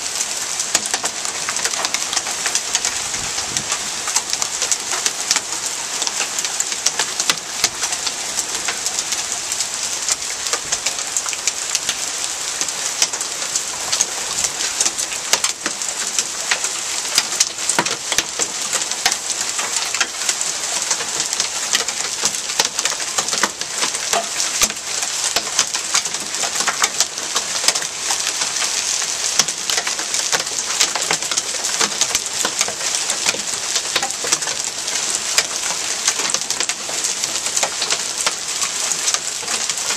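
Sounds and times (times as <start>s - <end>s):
rain hiss: 0.0s - 39.9s
hailstones striking: 12.6s - 39.9s.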